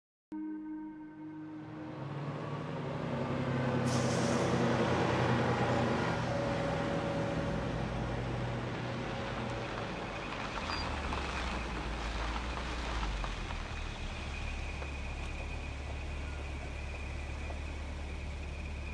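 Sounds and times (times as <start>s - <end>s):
bus diesel engine passing: 1.4s - 18.9s
passing cars: 1.4s - 18.9s
air brake hiss: 3.8s - 4.8s.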